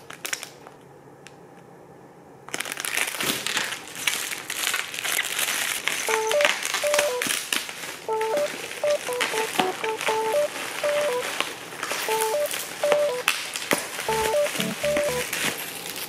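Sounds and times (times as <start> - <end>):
crinkly plastic toy crackling: 0.0 - 0.8, 2.5 - 8.7
short stepped tones: 8.1 - 11.3.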